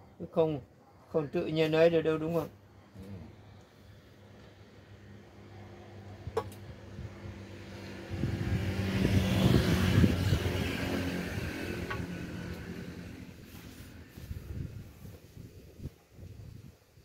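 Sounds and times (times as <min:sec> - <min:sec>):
vehicle engine passing by: 0:03.0 - 0:15.2.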